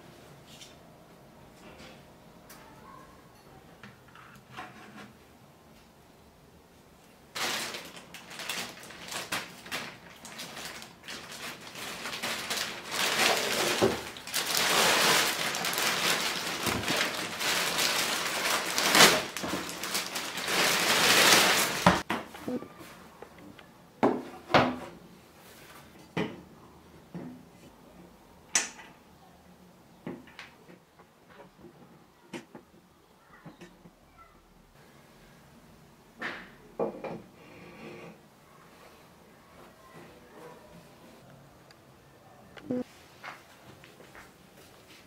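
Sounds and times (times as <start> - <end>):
plastic bag crinkling: 7.3 - 22.0.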